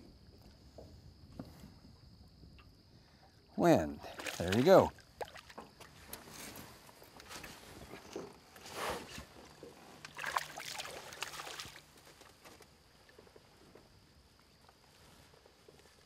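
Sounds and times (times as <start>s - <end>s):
fish splashing in water: 4.0s - 5.6s, 10.0s - 11.9s.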